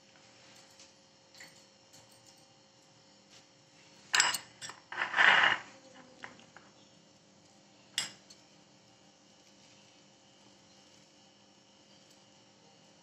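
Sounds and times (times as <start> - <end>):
spoon scraping rustle: 3.3 - 6.4
metal spoon clinking glass bowl: 4.2 - 5.6, 8.0 - 8.4.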